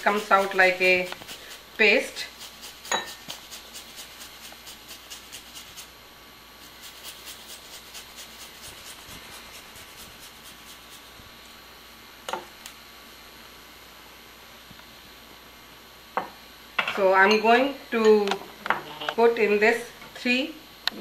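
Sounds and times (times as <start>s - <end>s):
ginger scraping on a zester: 0.0s - 5.9s, 6.6s - 11.1s.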